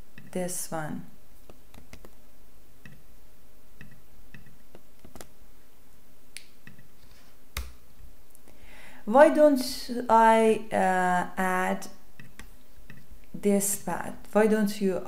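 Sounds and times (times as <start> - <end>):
faint steady hum: 0.0 - 15.0
mouse and keyboard clicks: 1.5 - 2.2, 3.8 - 5.3.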